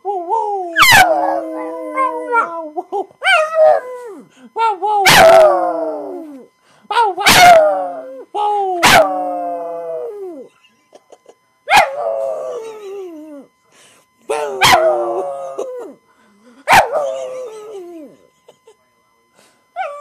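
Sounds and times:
dog howling: 0:00.8 - 0:04.2, 0:05.0 - 0:06.4, 0:07.2 - 0:08.2, 0:08.8 - 0:10.5, 0:11.7 - 0:12.7, 0:14.4 - 0:16.0.

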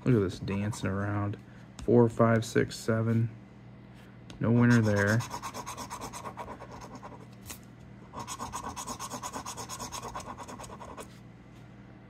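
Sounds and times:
coin scraping scratch-off ticket: 0:08.2 - 0:11.0.

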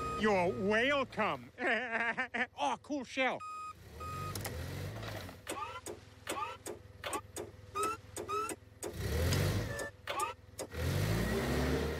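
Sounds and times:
forklift engine revving: 0:03.6 - 0:11.9
cartoon squeaks and clicks: 0:05.4 - 0:10.8.

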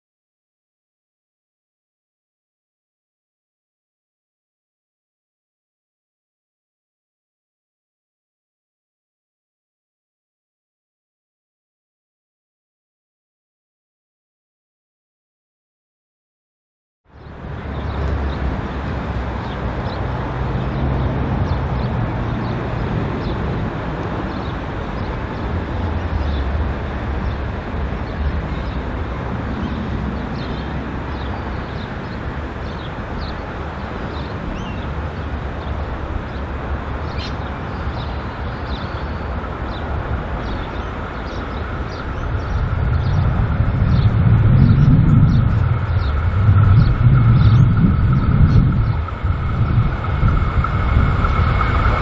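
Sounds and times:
birds chirping: 0:17.1 - 0:52.0
diesel locomotive engine rumble: 0:17.1 - 0:52.0.

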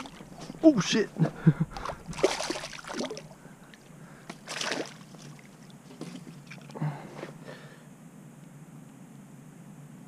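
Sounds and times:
water sloshing at rocky shoreline: 0:00.0 - 0:06.8.

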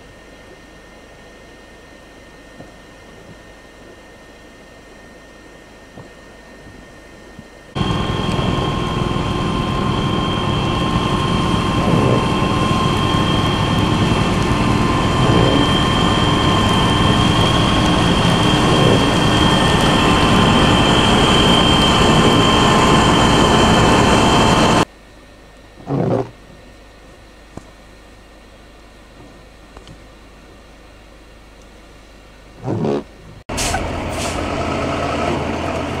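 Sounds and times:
high whine: 0:00.0 - 0:24.9
snow blower machine drone: 0:07.7 - 0:24.9, 0:25.8 - 0:26.3, 0:32.6 - 0:36.0.

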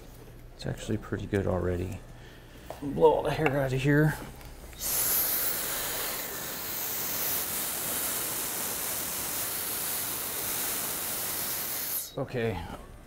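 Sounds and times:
blow dryer running: 0:04.8 - 0:12.1.

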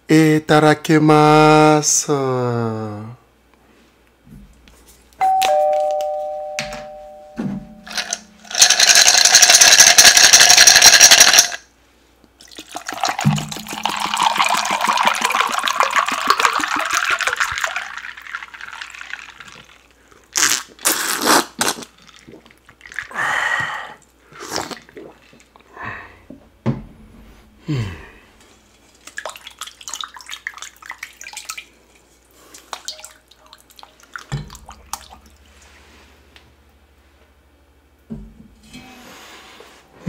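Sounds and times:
two-note ding-dong chime: 0:05.2 - 0:07.9
liquid pouring over ice: 0:12.4 - 0:20.0.

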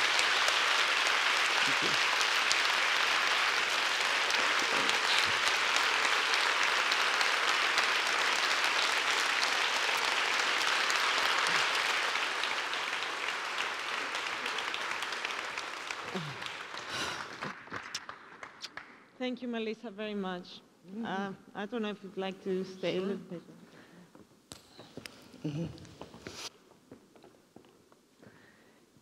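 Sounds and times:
large audience applauding: 0:00.0 - 0:19.0.

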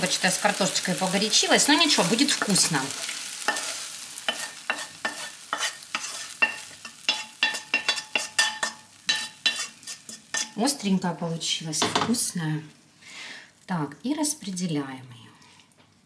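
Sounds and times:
wooden spoon scraping a frying pan: 0:02.4 - 0:10.7.

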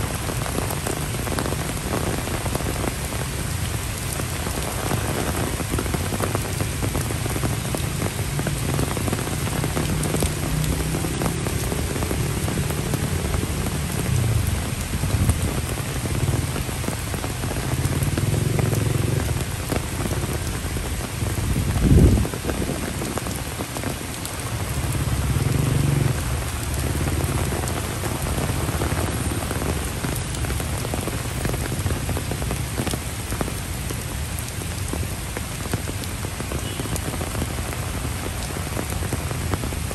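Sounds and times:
rain on path and leaves: 0:00.0 - 0:39.9.

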